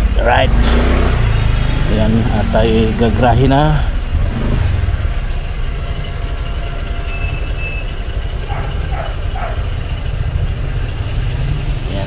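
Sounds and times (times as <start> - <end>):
motorcycle engine rumble: 0.0 - 12.0
high-pitched squeals: 5.2 - 10.0.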